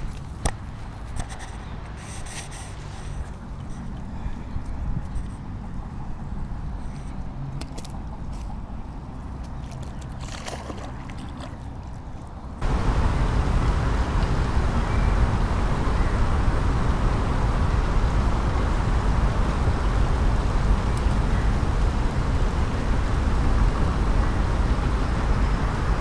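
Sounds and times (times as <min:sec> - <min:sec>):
loud rushing noise with rumble: 0:12.6 - 0:26.0.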